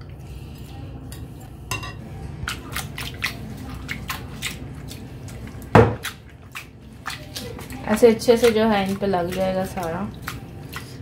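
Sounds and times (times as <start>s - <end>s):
hands squishing shrimp: 2.5s - 11.0s.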